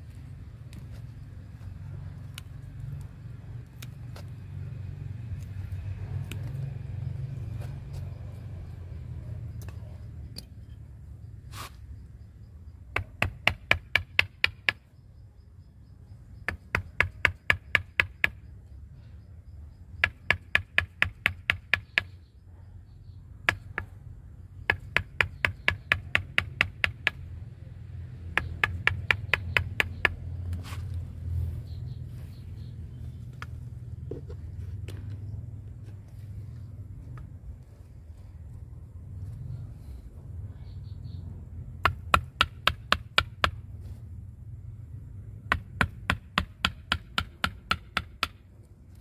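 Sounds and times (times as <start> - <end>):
mallet striking wood chisel: 41.8 - 43.5, 45.5 - 48.4.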